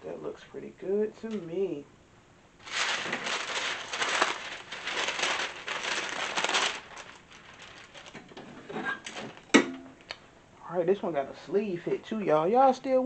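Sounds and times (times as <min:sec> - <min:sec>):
paper crinkling and rustling: 0:02.6 - 0:09.6.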